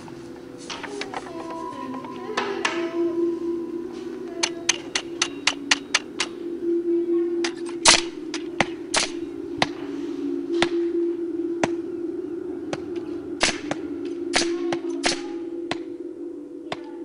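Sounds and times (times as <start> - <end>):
steady humming drone: 0.0 - 17.0
sharp clicks and snaps: 7.4 - 9.8.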